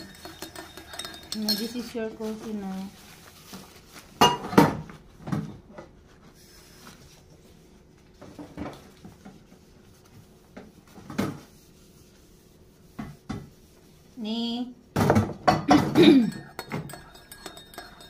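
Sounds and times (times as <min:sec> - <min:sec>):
dishes and mugs clattering: 0:00.0 - 0:02.0, 0:04.2 - 0:04.9, 0:15.0 - 0:18.0.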